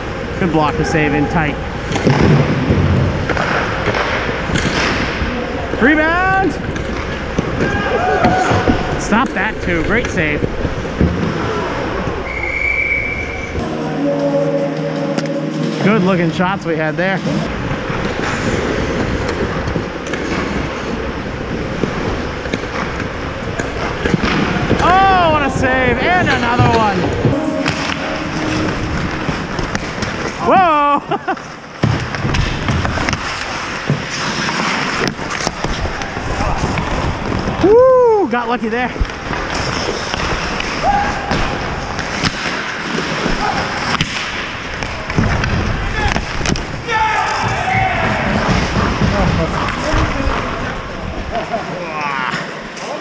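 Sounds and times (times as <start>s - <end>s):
skates scraping ice: 0.0s - 13.9s, 14.7s - 53.0s
sharp knocks of sticks and puck: 1.9s - 5.3s, 31.8s - 37.6s, 39.0s - 46.8s.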